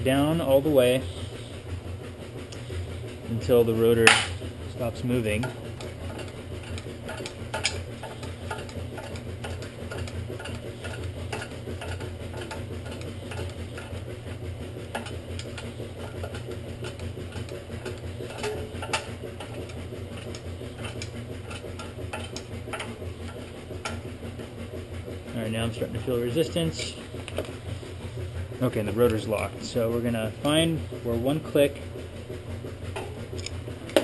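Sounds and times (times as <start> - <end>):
ratcheting clicks: 5.3 - 14.0, 33.0 - 34.0.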